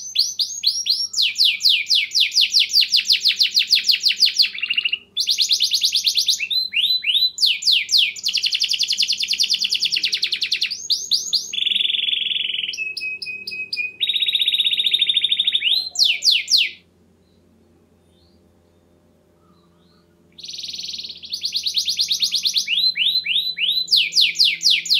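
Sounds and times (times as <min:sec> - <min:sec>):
canary singing trills: 0:00.0 - 0:24.9.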